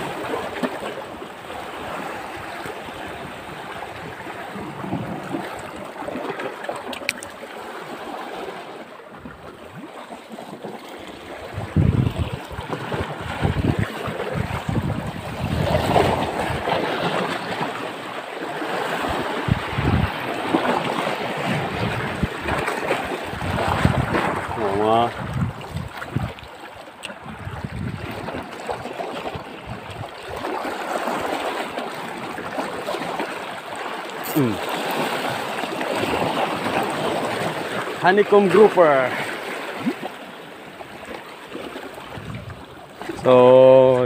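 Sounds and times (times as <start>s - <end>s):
sea waves washing over rocks: 0.0s - 44.0s
wind buffeting microphone: 11.4s - 17.2s, 19.0s - 26.5s, 27.2s - 30.4s, 42.1s - 42.8s.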